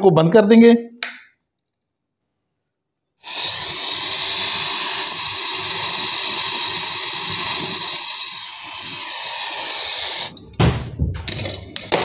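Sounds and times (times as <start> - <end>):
torch flame hissing: 3.2 - 10.4.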